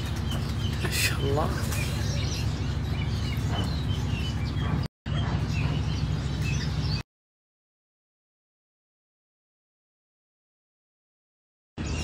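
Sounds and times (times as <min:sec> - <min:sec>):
caged birds chirping: 0:00.0 - 0:07.0, 0:11.8 - 0:12.0
steady low hum: 0:00.0 - 0:07.0.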